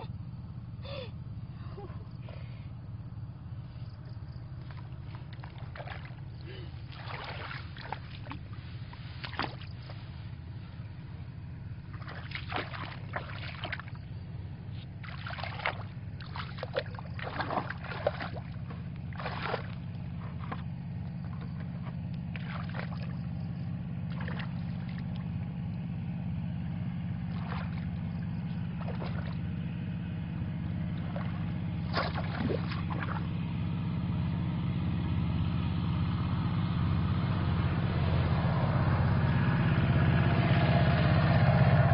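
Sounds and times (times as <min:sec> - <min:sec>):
low engine hum: 0:00.0 - 0:41.9
splashing in shallow water: 0:03.8 - 0:25.5, 0:27.0 - 0:33.7.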